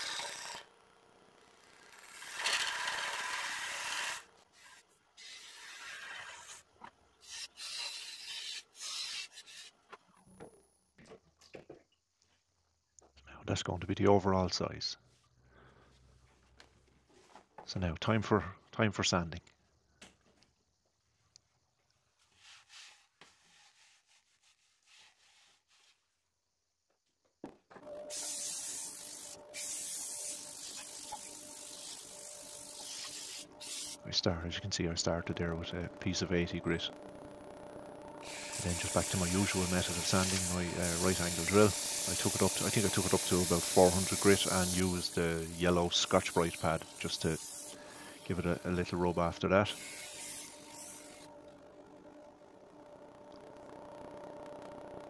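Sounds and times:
lathe tool scraping wood: 0.0s - 0.7s, 1.8s - 6.6s, 38.2s - 51.3s
sandpaper hissing on spinning wood: 2.2s - 6.6s, 7.2s - 9.8s, 28.1s - 34.1s, 38.2s - 51.3s
sandpaper rustling: 22.2s - 26.1s, 38.7s - 49.1s.

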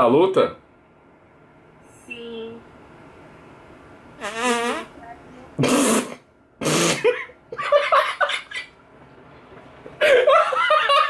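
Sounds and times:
man laughing: 10.0s - 11.0s.

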